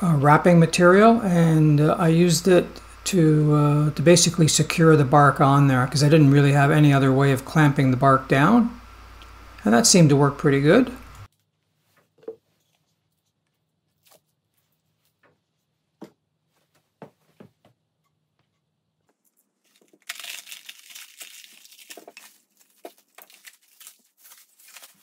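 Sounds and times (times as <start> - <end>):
plastic wrap tearing and crinkling: 19.3 - 25.0
plastic wrap slit with knife: 19.7 - 25.0.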